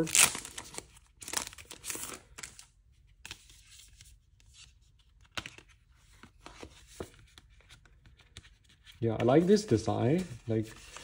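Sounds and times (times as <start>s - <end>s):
paper packaging rustling: 5.2s - 11.0s.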